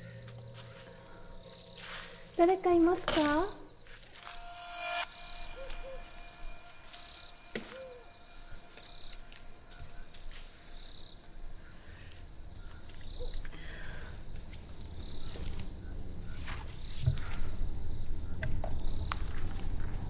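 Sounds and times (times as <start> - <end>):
insects chirring: 0.0 - 20.0
low rumble: 4.1 - 10.8.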